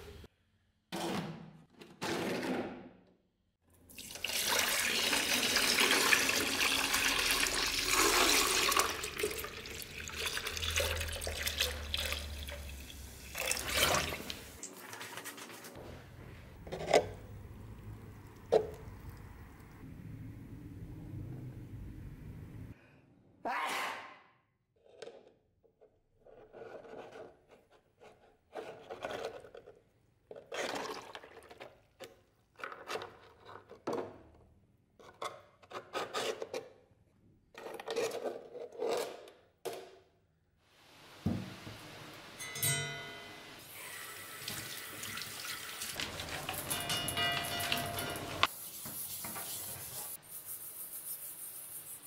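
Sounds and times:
tap running into a metal sink: 41.2s - 41.8s.

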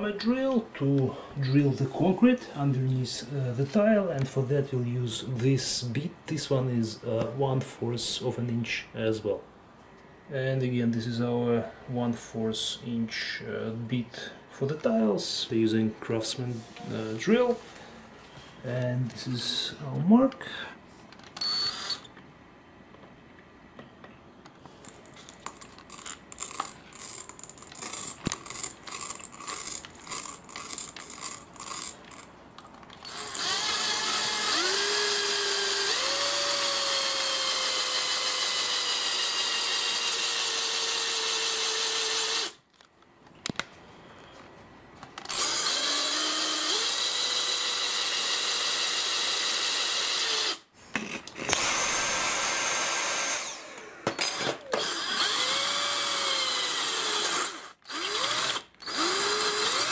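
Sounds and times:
drill whining through tile: 21.4s - 22.1s, 26.4s - 32.3s, 33.0s - 42.6s, 45.3s - 59.9s.

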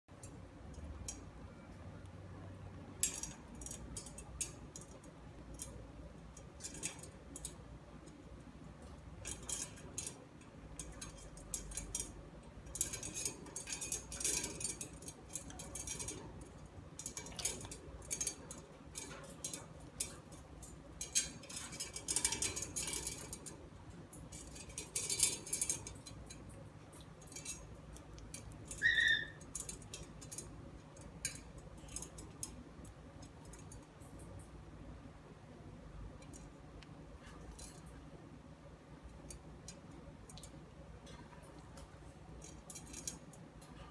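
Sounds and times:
parrot squeak: 28.8s - 29.4s.

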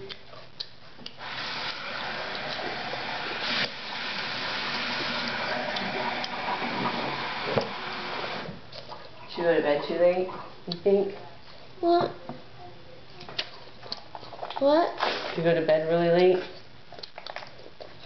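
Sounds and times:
tap water running into sink: 1.2s - 8.6s.

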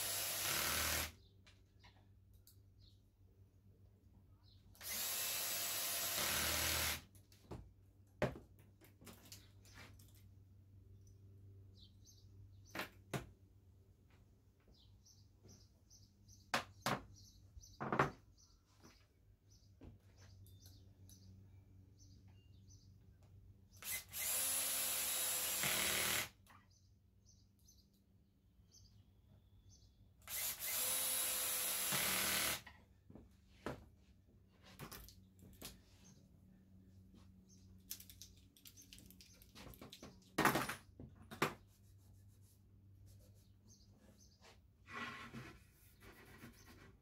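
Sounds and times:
cordless drill driving screws: 0.0s - 1.2s, 4.8s - 7.1s, 23.8s - 26.4s, 30.2s - 32.7s.

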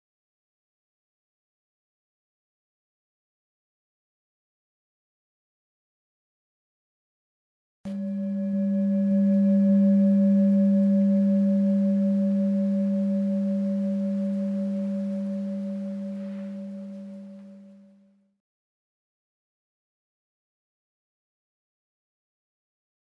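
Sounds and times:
singing bowl ringing: 7.9s - 18.0s.

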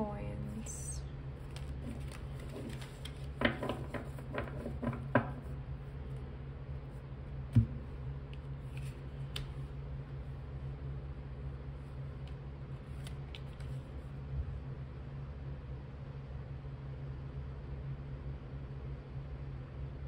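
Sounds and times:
steady low hum: 0.0s - 20.0s
knock on table: 3.4s - 5.4s, 7.6s - 7.8s
cards clicking on table: 8.7s - 9.6s.

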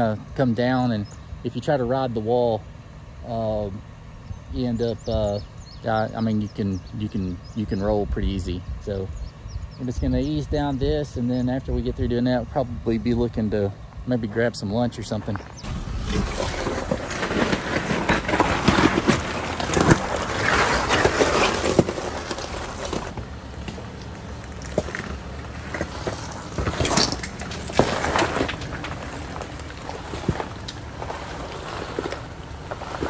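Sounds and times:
low vehicle rumble: 0.0s - 33.0s
tyres crunching over rock: 14.8s - 33.0s
sharp knocks and scrapes: 15.6s - 33.0s.

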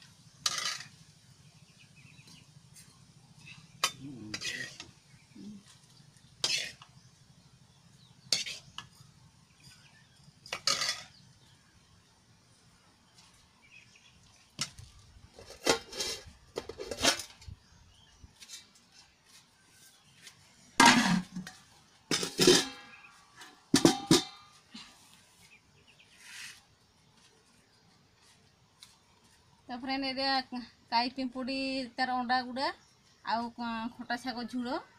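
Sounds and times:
steel dishes clinking and clattering: 20.8s - 22.9s, 23.8s - 24.4s.

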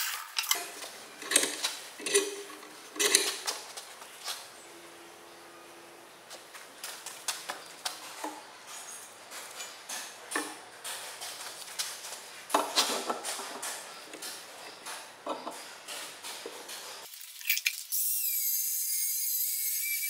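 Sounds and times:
metal knocking and clinking: 0.4s - 3.5s.

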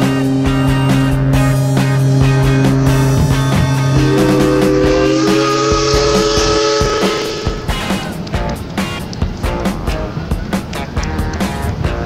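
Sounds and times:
background music with held chords: 0.0s - 6.7s
soft steady beat: 0.6s - 8.6s.

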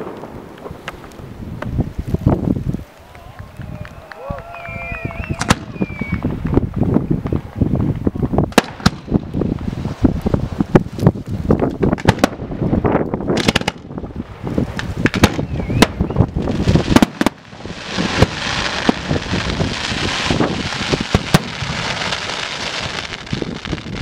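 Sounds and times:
fireworks crackling: 0.0s - 24.0s
firework launch thumps: 5.4s - 10.0s, 20.3s - 22.0s.

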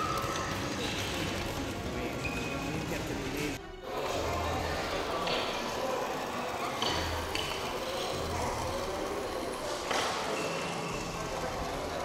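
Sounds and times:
crowd chatter in large hall: 0.0s - 12.0s.

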